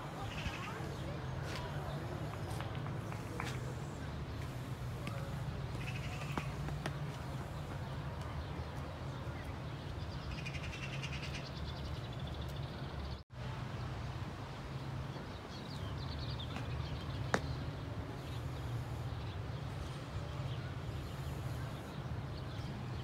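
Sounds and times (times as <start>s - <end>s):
small birds chirping: 0.1s - 13.2s.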